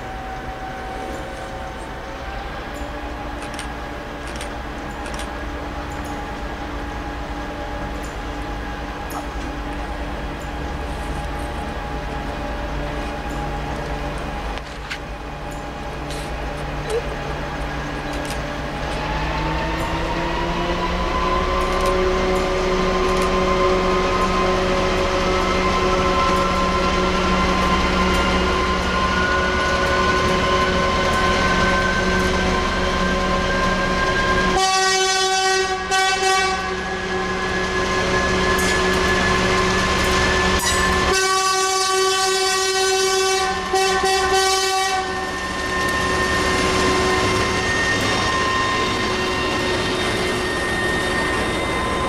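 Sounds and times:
climbing whine: 0.0s - 34.6s, 36.6s - 41.6s, 45.0s - 52.0s
diesel locomotive engine under load: 0.0s - 52.0s
locomotive horn blasts: 33.3s - 37.5s, 40.6s - 51.9s.

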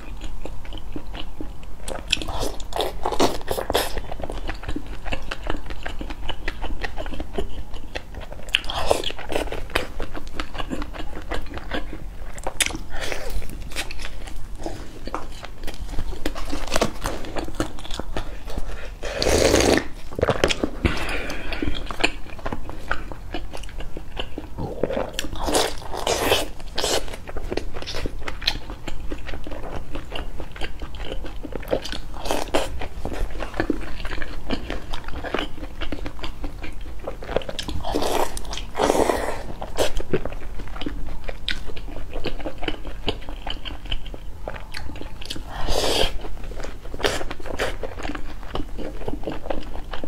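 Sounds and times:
crunchy chewing: 0.0s - 50.0s
slurping broth: 19.0s - 19.9s.

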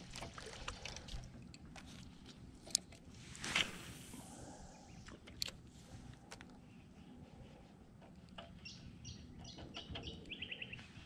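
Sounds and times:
bird chirping and trilling: 8.6s - 10.8s.

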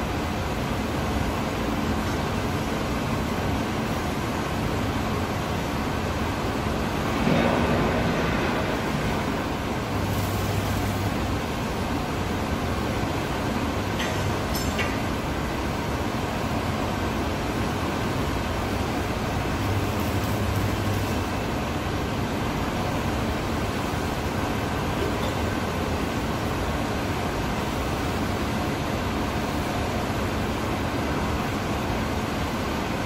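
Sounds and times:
arc welding hiss: 8.8s - 11.6s, 19.4s - 21.6s.

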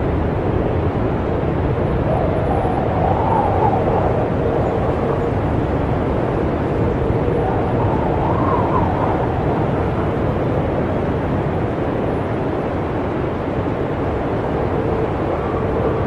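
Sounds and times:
snowstorm wind howling: 0.0s - 16.0s.

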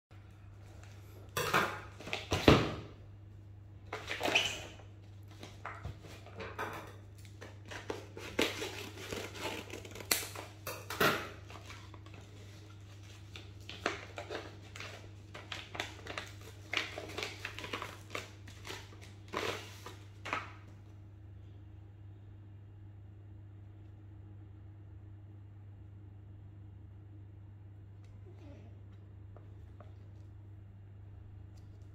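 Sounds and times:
packaging rustling and crinkling: 7.2s - 10.6s, 11.4s - 20.7s.

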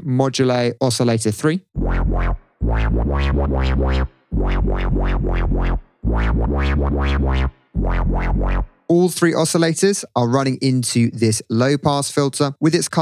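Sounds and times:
wobbling dubstep bass synth: 1.8s - 8.8s.

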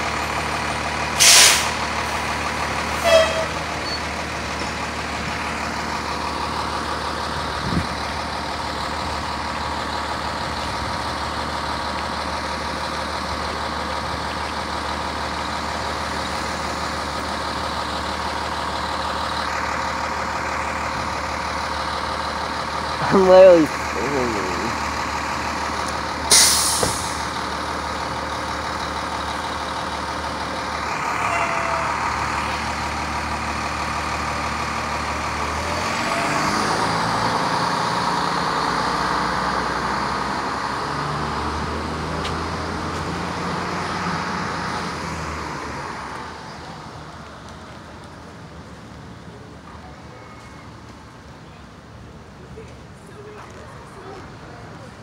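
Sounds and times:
diesel bus engine running: 0.0s - 55.0s
air brake hiss: 1.2s - 1.8s, 26.3s - 27.2s.

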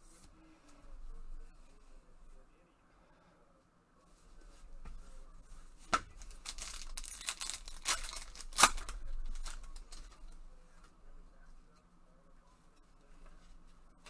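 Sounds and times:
sharp foil snaps: 6.1s - 10.1s
foil wrapper crinkling and tearing: 6.2s - 10.0s.

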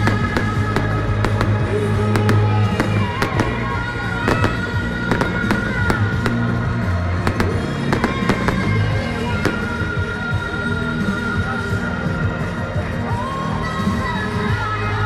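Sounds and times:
fireworks bangs and crackles: 0.0s - 10.6s
music with low bass: 0.0s - 15.0s.

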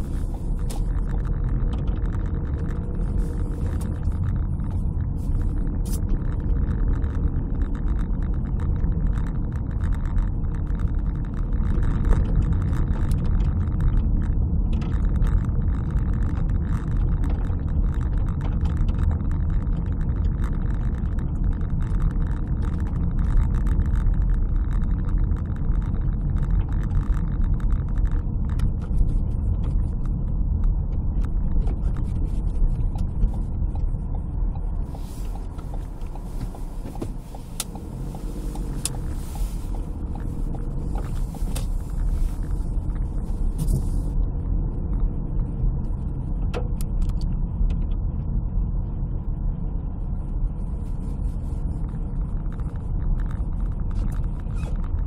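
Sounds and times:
engine and tyre rumble: 0.0s - 55.0s
scattered clicks and ticks: 0.0s - 55.0s.

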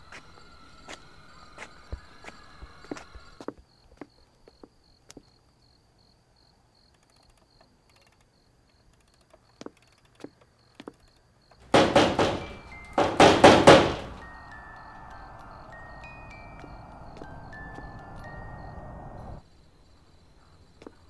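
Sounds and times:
crickets chirping: 0.0s - 21.0s
soft ticks: 6.8s - 11.6s
glass door rattling and banging: 11.7s - 14.2s.

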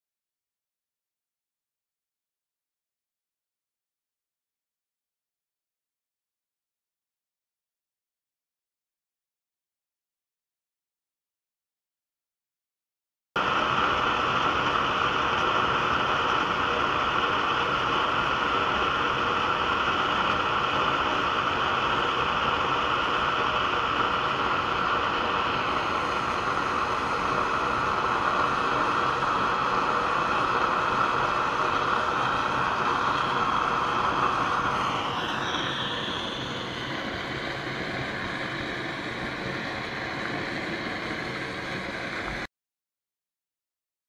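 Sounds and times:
stove flame hissing: 13.4s - 42.5s.

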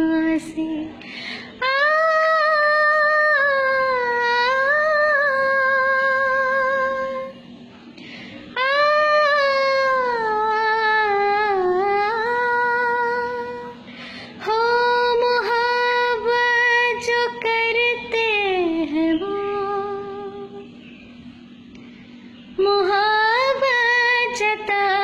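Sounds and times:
woman singing wordless notes: 0.0s - 7.3s, 8.6s - 13.8s, 14.4s - 20.6s, 22.6s - 25.0s.

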